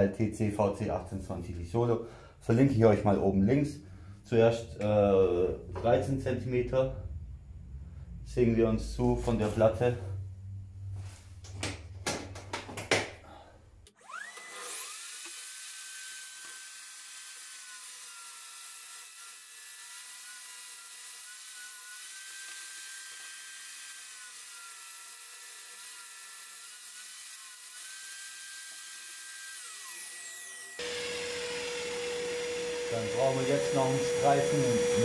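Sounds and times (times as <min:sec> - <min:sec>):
table saw cutting plywood: 0:13.9 - 0:35.0.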